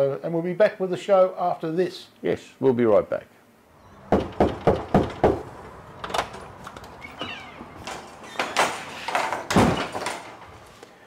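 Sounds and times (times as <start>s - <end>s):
door thuds: 4.0s - 6.5s, 7.1s - 10.5s
knock on wooden door: 4.1s - 5.5s
door handle rattling: 4.1s - 10.6s
door squeak: 6.0s - 10.4s.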